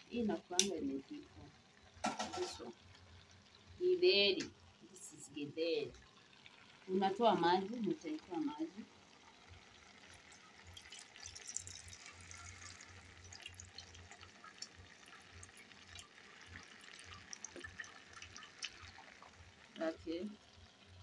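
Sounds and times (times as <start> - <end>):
liquid trickling into metal bowl: 10.0 - 19.7.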